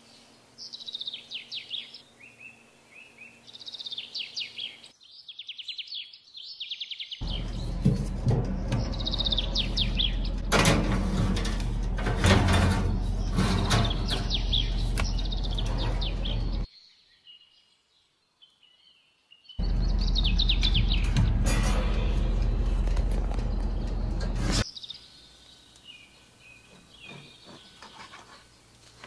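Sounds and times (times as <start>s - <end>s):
birds chirping: 0.0s - 29.0s
metal clatters: 7.2s - 15.0s, 20.6s - 24.6s.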